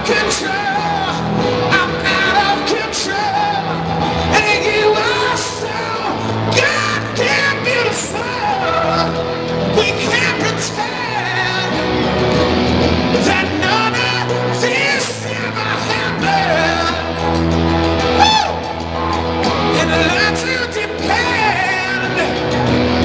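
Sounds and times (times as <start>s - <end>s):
male lead vocal: 0.0s - 18.7s, 19.5s - 23.0s
live rock band playing: 0.0s - 23.0s
yells and whoops: 17.9s - 22.8s.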